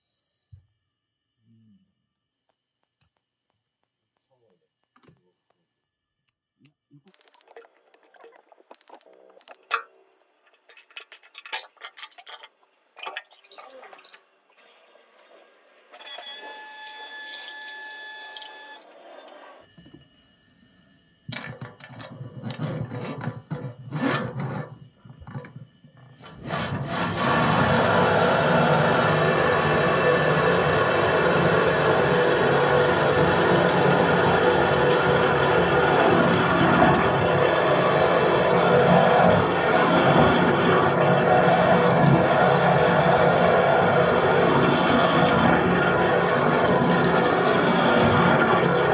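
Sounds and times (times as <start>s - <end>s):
drain washer jetting water: 9.6s - 14.8s, 17.1s - 19.1s, 26.2s - 48.9s.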